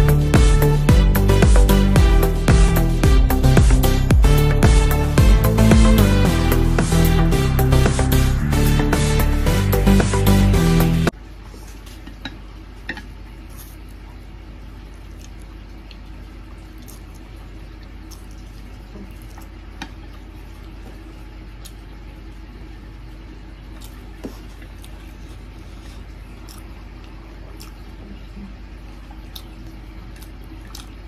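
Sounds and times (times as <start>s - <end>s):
low hum: 0.0s - 11.3s.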